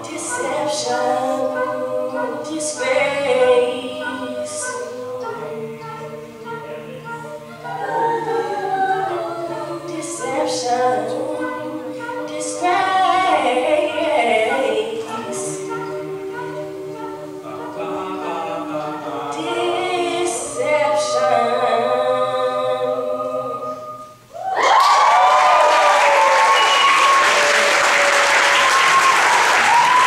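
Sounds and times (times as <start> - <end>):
a cappella choir singing: 0.0 - 24.5
audience cheering: 24.4 - 30.0
audience applause: 24.6 - 30.0.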